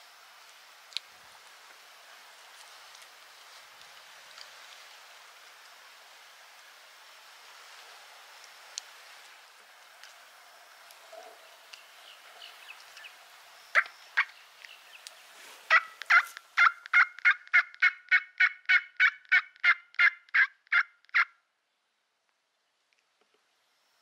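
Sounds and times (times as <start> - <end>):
turkey yelping: 13.8 - 14.4, 15.7 - 21.3.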